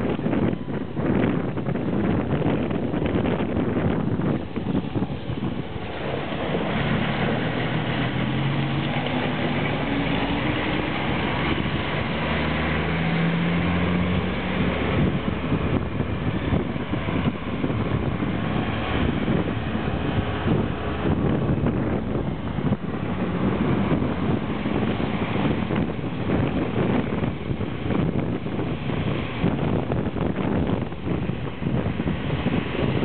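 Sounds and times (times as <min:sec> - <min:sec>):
wind rushing over microphone: 0:00.0 - 0:33.0
motorbike engine hum: 0:12.9 - 0:33.0.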